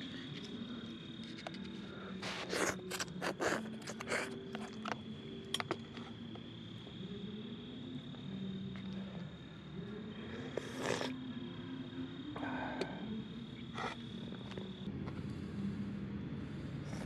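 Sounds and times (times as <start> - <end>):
crickets trilling: 0.0 - 17.0
faint low drone: 4.9 - 17.0.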